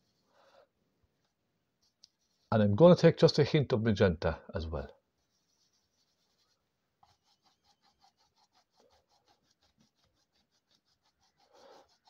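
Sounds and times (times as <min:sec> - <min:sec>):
brush scratching on palette: 0:00.0 - 0:00.3, 0:01.8 - 0:02.6, 0:05.1 - 0:12.0.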